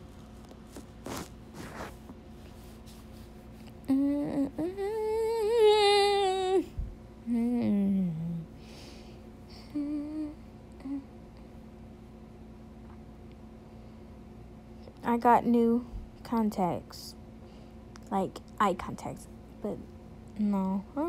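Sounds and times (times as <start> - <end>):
woman humming: 3.8 - 8.6, 9.5 - 11.2.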